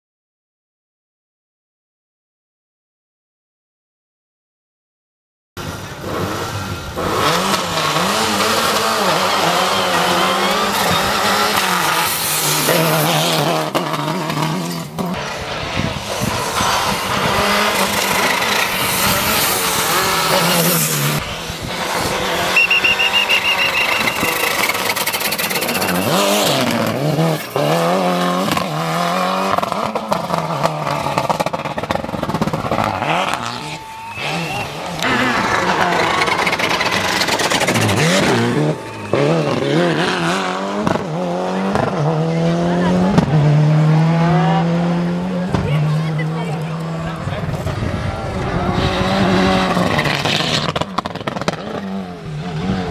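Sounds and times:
rally car engine revving hard: 5.6s - 52.9s
tyres squealing: 22.4s - 27.6s.

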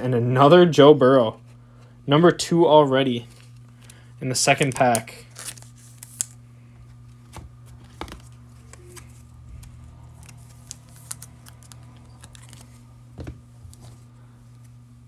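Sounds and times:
steady low hum: 0.0s - 15.0s
trading cards rustling and clicking: 3.2s - 14.7s.

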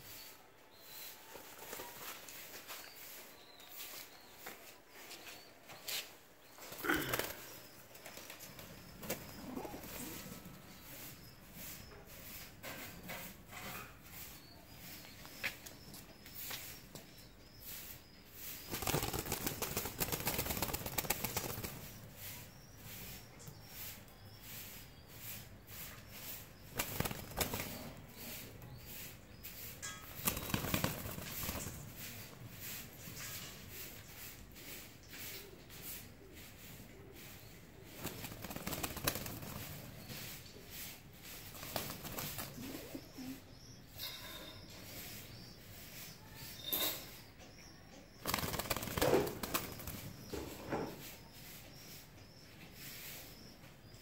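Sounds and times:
pigeon wings flapping: 18.7s - 22.0s, 26.8s - 28.0s, 30.2s - 32.0s, 37.9s - 39.9s, 41.6s - 42.8s, 48.2s - 50.0s
pigeons cooing: 42.1s - 43.5s.

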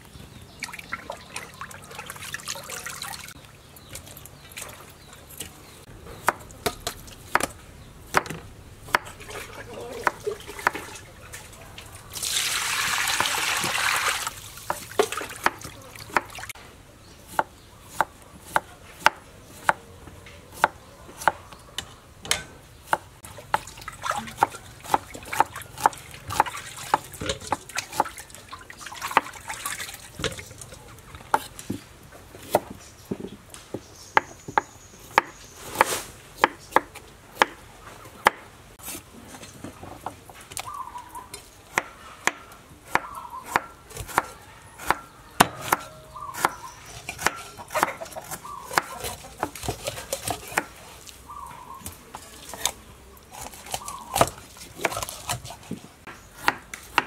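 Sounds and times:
water pouring and splashing: 0.6s - 3.4s, 9.2s - 16.6s, 23.3s - 31.3s.

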